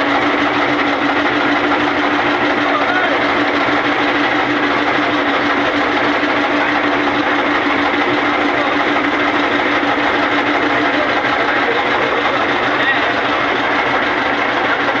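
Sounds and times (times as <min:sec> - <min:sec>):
motorboat engine drone: 0:00.0 - 0:15.0.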